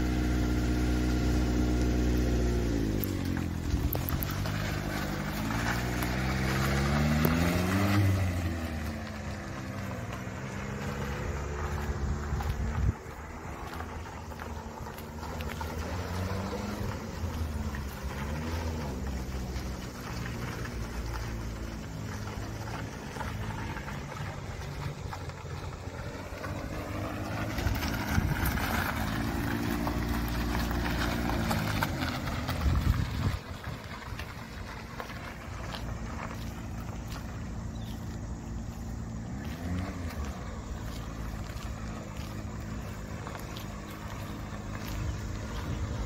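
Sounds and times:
small truck engine: 0.0s - 46.0s.

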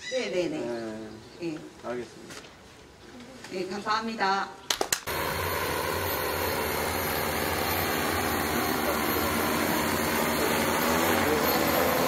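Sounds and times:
drone propellers whirring: 5.1s - 12.0s.

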